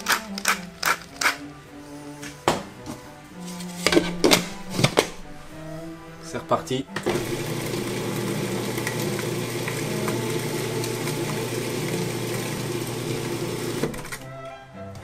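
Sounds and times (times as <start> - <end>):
food processor running: 7.0 - 14.2.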